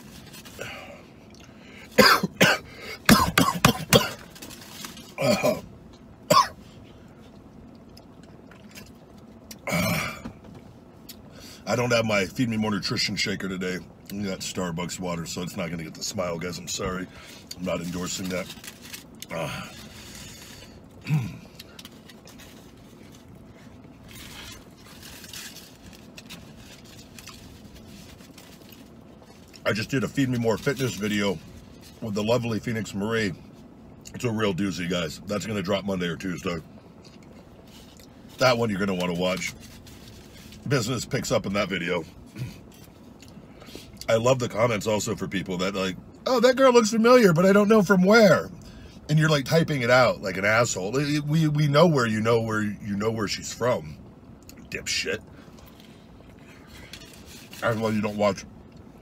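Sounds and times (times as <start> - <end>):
man coughing: 1.9 - 4.3, 5.1 - 5.7, 6.3 - 6.6
man clearing throat: 2.0 - 4.3, 5.2 - 5.7, 6.3 - 6.6, 21.0 - 21.5
wet chewing sounds: 7.3 - 9.6.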